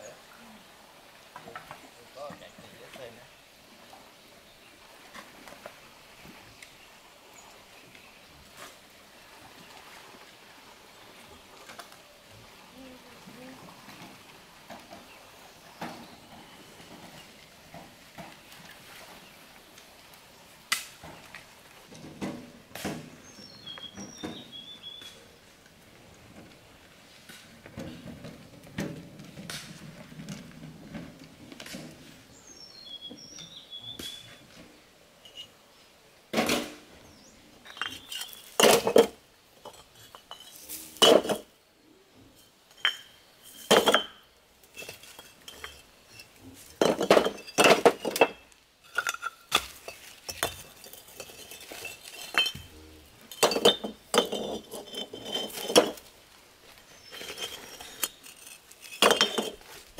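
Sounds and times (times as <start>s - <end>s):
wheelbarrow rolling rumble: 13.3s - 19.4s, 25.6s - 32.6s, 42.2s - 59.9s
clay bricks clinking together: 42.8s - 52.7s, 53.3s - 56.1s, 57.1s - 59.8s.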